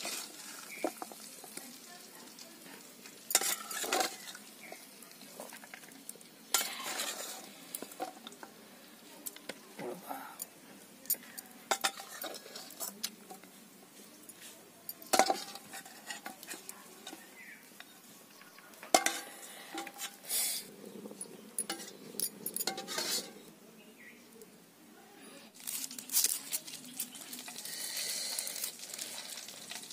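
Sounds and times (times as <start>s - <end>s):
steel spatula scraping a pan: 3.3s - 4.8s, 6.5s - 8.1s, 11.7s - 13.0s, 15.1s - 17.3s, 18.9s - 20.6s, 22.6s - 23.4s.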